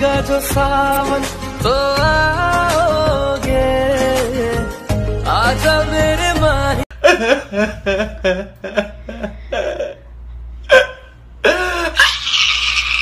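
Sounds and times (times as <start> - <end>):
man sobbing and wailing: 6.9 - 13.0.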